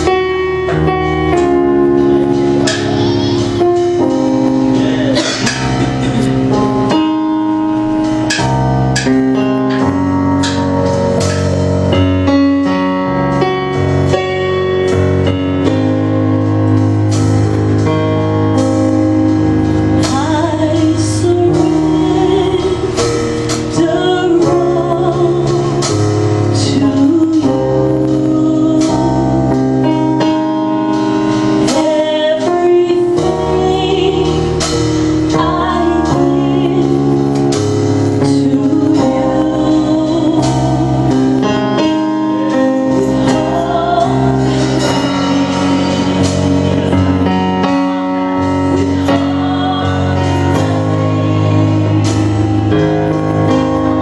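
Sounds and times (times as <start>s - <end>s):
bass line: 0.0s - 54.0s
keyboard chords: 0.0s - 54.0s
woman singing with vibrato: 19.9s - 30.2s, 31.6s - 54.0s.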